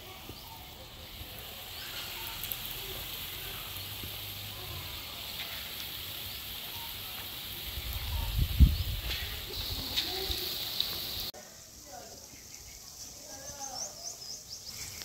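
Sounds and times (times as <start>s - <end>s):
faint crackles: 0.0s - 11.3s
fritters sizzling in hot oil: 0.0s - 13.1s.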